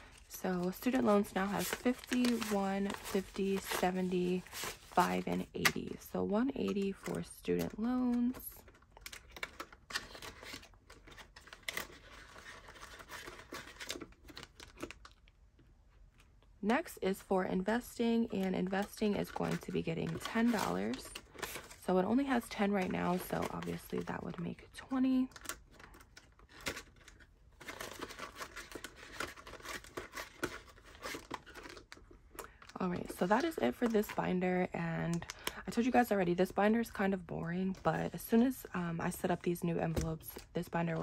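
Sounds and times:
banknotes rustling: 0.0s - 14.9s, 18.2s - 36.0s.

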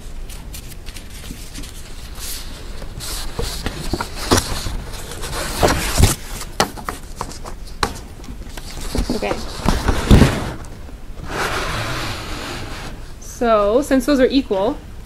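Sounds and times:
knocks and crinkles: 0.2s - 10.9s
paper rustling and sliding: 0.3s - 7.9s, 8.5s - 13.1s.

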